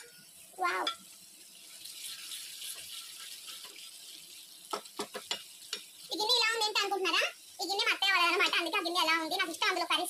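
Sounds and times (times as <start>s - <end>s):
curry bubbling in a pot: 0.0s - 10.0s.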